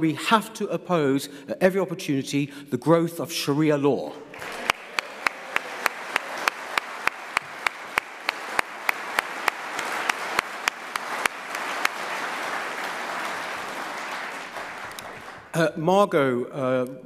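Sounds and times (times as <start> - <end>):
audience applauding: 4.3 - 15.6
sharp evenly spaced claps: 4.4 - 15.6.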